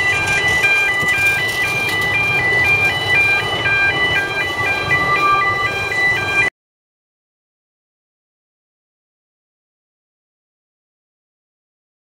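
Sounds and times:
high electronic two-note tone: 0:00.0 - 0:06.5
passing train rumble: 0:00.0 - 0:06.5.

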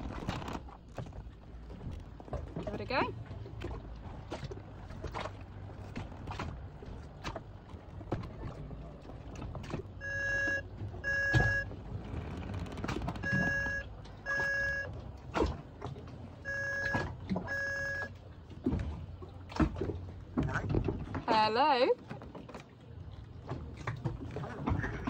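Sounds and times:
telephone ringback tone: 0:10.0 - 0:11.7, 0:13.2 - 0:14.9, 0:16.5 - 0:18.1.

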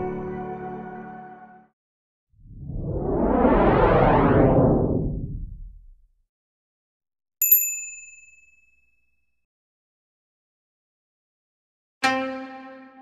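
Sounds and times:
deep whoosh: 0:02.4 - 0:06.1
bright bell ding: 0:07.4 - 0:08.8.

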